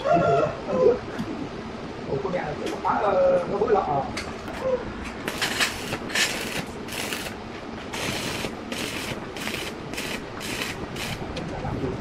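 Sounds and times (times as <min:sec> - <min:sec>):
welding arc crackling: 0:05.2 - 0:11.4.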